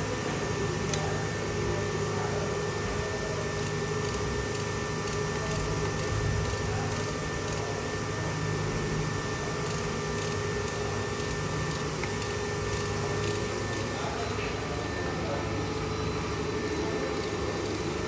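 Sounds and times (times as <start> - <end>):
machine hum with whine: 0.0 - 18.0.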